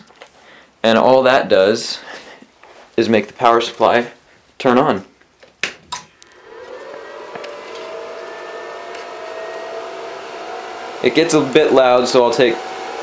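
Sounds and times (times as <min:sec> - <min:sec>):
cooling fan whining: 0:06.2 - 0:13.0.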